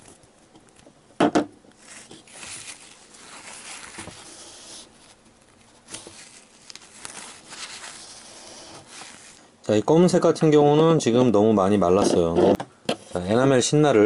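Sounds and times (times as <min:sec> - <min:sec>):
tissue paper rustling: 0:01.7 - 0:09.6.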